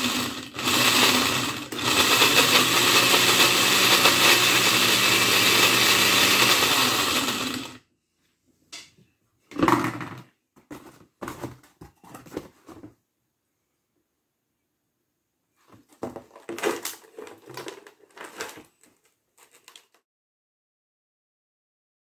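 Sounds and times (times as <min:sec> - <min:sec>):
blender shredding cards: 0:00.0 - 0:07.8, 0:16.0 - 0:20.0.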